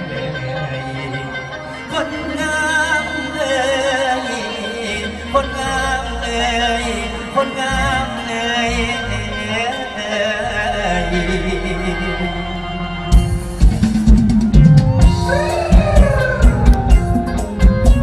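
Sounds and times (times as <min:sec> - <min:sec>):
man singing: 0:00.0 - 0:13.3
band accompaniment: 0:00.0 - 0:18.0.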